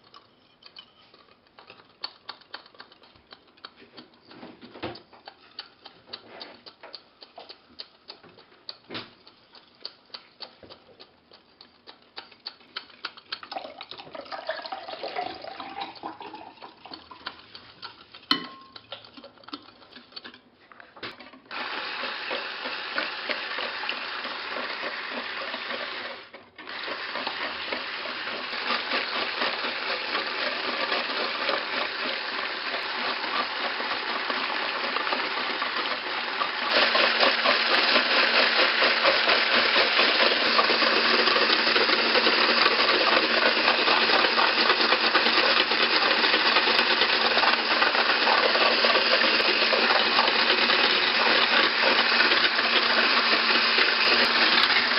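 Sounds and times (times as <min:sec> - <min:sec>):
milk pouring: 0:12.5 - 0:20.1, 0:21.5 - 0:54.9
electric mixer whirring: 0:21.5 - 0:54.9.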